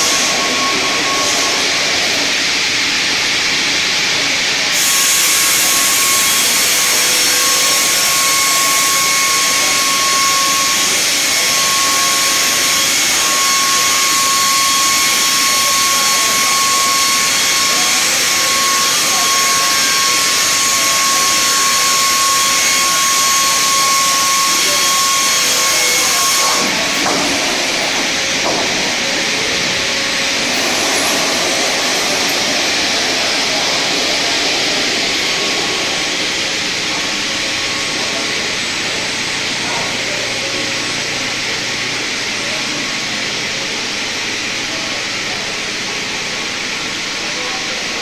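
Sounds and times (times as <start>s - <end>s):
circular saw blades whining: 0.0s - 48.0s
saw cutting log hiss: 4.6s - 36.2s.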